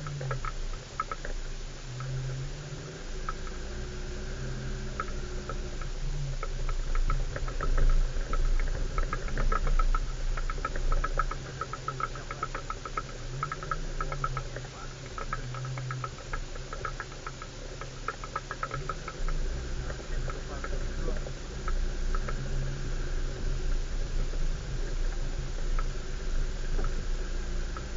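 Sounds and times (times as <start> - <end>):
engine running low: 0.0 - 27.9.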